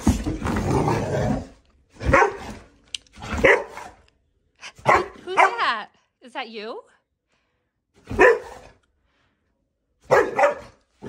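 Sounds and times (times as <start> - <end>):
dog barking: 2.0 - 2.6, 3.2 - 4.0, 4.7 - 5.8, 8.0 - 8.8, 10.0 - 10.9.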